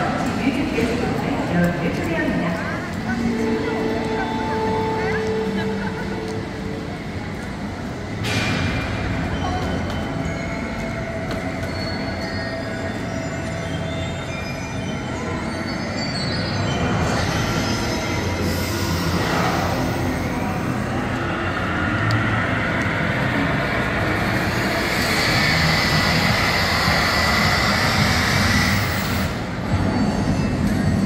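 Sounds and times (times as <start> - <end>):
train rumbling on rails: 0.0 - 31.0
high steady squeal: 11.6 - 31.0.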